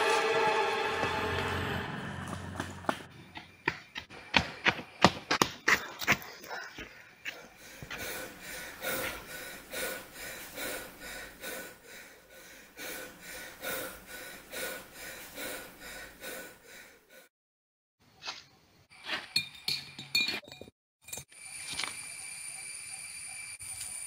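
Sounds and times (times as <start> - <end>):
man panting: 5.7 - 17.3.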